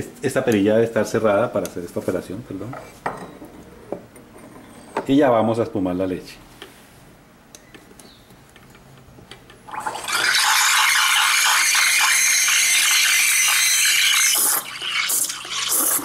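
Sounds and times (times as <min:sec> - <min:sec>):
steam wand hissing: 0:10.2 - 0:16.0.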